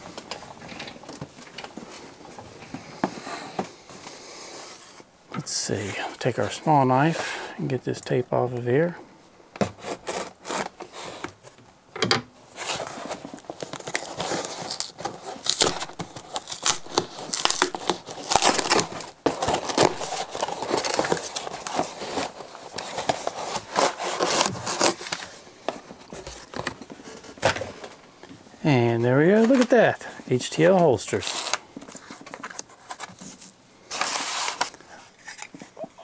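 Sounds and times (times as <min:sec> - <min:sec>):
knife cutting packing tape: 0:09.6 - 0:11.2, 0:13.6 - 0:25.2
packing tape tearing: 0:09.6 - 0:11.3, 0:12.6 - 0:25.4, 0:31.1 - 0:35.5
packing paper crinkling: 0:12.6 - 0:27.4, 0:29.2 - 0:35.8.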